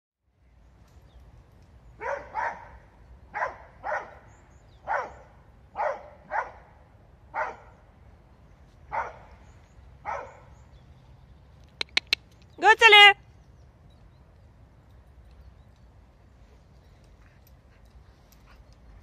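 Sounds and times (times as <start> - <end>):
dog barking: 2.0 - 4.2, 4.8 - 6.7, 7.3 - 7.7, 8.9 - 9.3, 10.0 - 10.5.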